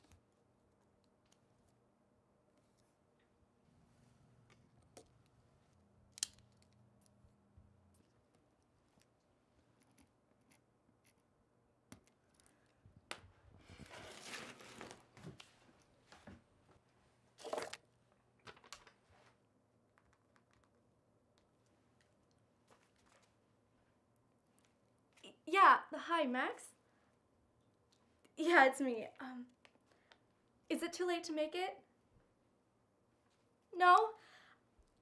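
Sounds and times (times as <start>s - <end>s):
rustling and crinkling: 12.1s - 19.4s, 21.6s - 23.6s.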